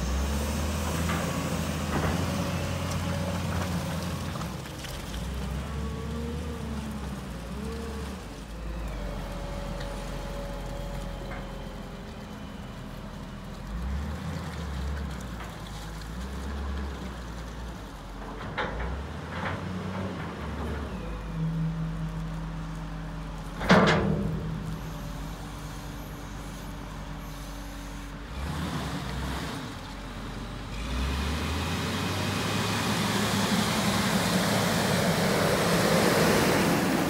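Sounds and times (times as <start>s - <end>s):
tyres on wet pavement: 0.0s - 37.0s
diesel engine running: 19.4s - 37.0s.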